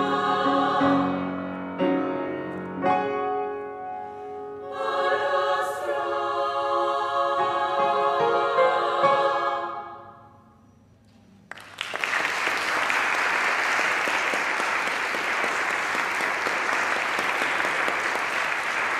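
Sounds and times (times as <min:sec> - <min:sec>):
women's choir singing chord: 0:00.0 - 0:01.4, 0:04.5 - 0:10.6
audience applause: 0:11.5 - 0:18.9.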